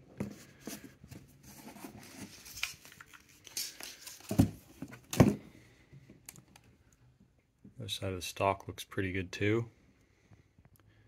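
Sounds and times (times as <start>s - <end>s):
rustling and scraping on cardboard: 0.2s - 5.3s.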